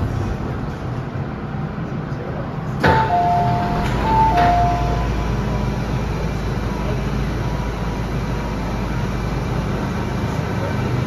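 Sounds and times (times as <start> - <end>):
train low hum: 0.0 - 11.0
doors sliding open: 2.7 - 6.4
train doors releasing knock: 2.8 - 5.2
two-note door chime: 2.8 - 5.2.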